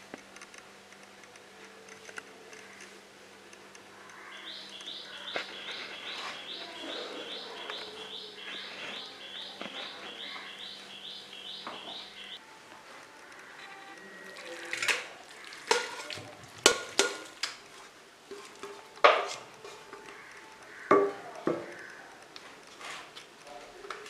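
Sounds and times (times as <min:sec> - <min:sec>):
bird chirping: 0:04.0 - 0:12.4
faint clicks: 0:21.7 - 0:24.0.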